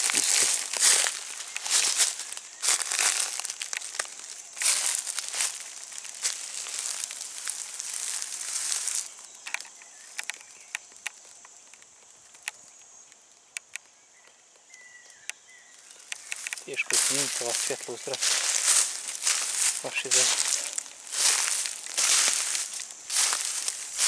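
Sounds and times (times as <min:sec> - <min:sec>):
footsteps in dry leaves: 0:00.0 - 0:11.3, 0:15.8 - 0:24.0
small clicks and ticks: 0:03.2 - 0:06.1, 0:09.0 - 0:15.4, 0:16.0 - 0:17.2.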